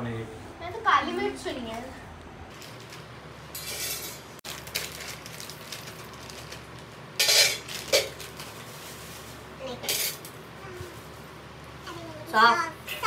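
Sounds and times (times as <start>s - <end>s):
plastic packet crinkling: 4.4s - 7.0s, 7.6s - 9.3s.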